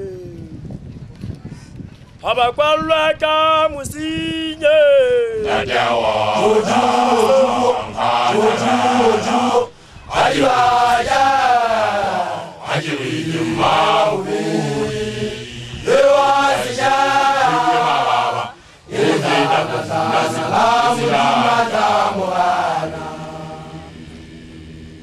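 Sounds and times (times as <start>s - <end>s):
men chanting: 5.4s - 24.2s.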